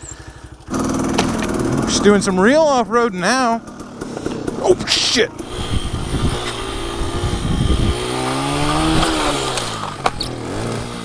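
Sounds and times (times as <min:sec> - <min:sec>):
dirt bike engine revving: 0:00.0 - 0:11.0
sharp knocks: 0:00.7 - 0:01.9.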